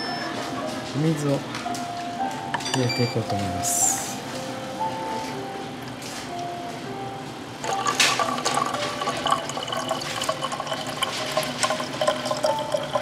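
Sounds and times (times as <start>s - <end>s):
water pouring into plastic bottle: 7.7s - 13.0s.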